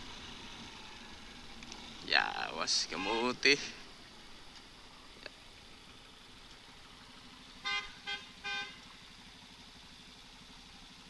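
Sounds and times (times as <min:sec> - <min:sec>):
engine humming: 0:00.0 - 0:11.0
vehicle horn tooting: 0:02.8 - 0:03.6, 0:07.6 - 0:08.9.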